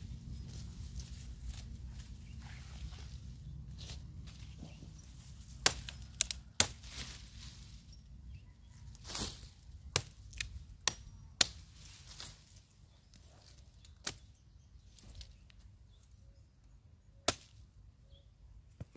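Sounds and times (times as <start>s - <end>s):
steady low rumble: 0.0s - 13.2s.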